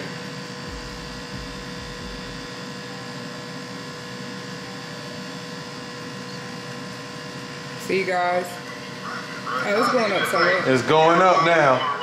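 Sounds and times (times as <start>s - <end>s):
electrical hum: 0.0s - 12.0s
low rumble: 0.7s - 2.5s.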